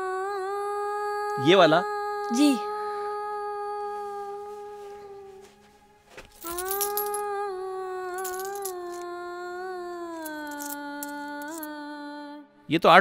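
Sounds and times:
coins clinking on glass: 0:06.4 - 0:07.3, 0:08.2 - 0:09.0, 0:10.2 - 0:11.7.

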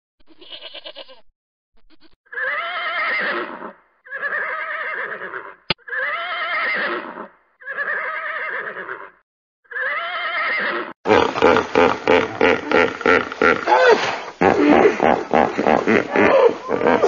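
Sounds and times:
horse whinnying: 0:02.3 - 0:12.8, 0:13.6 - 0:15.0.

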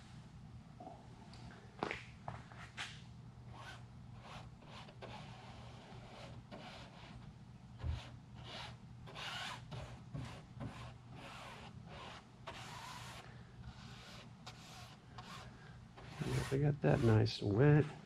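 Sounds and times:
paintbrush swishing: 0:10.7 - 0:17.5.

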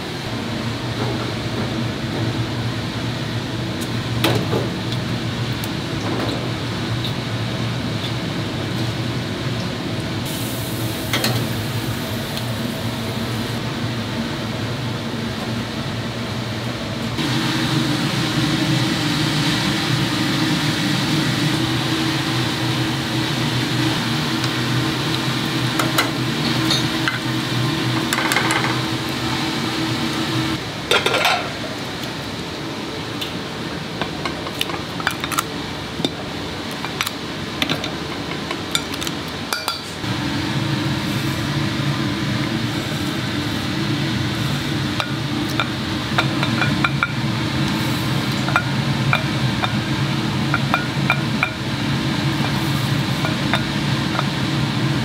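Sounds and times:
dishes and utensils clattering: 0:28.1 - 0:28.8, 0:30.9 - 0:31.6.

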